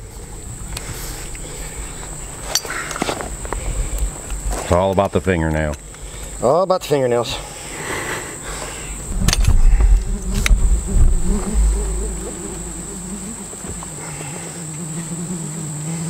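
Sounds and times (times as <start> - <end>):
insects droning: 0.0 - 16.0
fly buzzing close by: 8.9 - 16.0
low rumble: 9.0 - 13.4.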